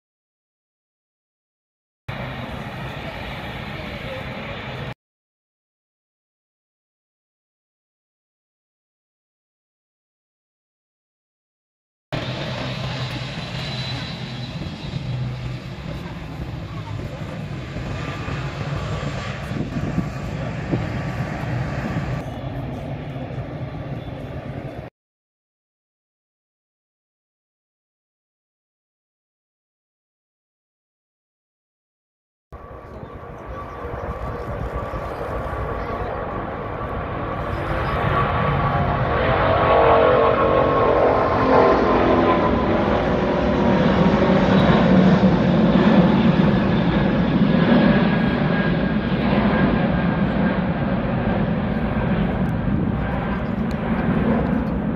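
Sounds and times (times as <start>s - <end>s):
faint jet engine whine: 2.1s - 5.0s, 12.2s - 24.9s, 32.6s - 54.9s
jet engines rumbling: 2.1s - 5.0s, 12.2s - 24.9s, 32.6s - 54.9s
high whine of engine fans: 12.2s - 24.9s.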